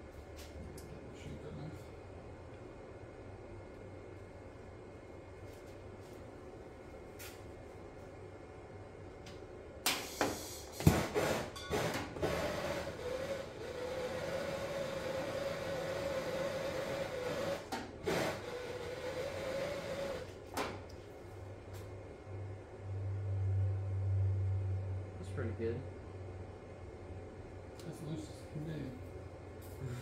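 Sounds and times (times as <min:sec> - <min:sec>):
gas torch flame hissing: 0:09.9 - 0:11.4.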